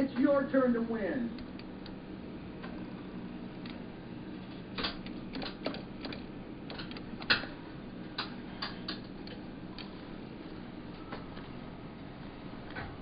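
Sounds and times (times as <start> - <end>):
low machine hum: 0.0 - 13.0
claw machine clicks and knocks: 4.7 - 7.6.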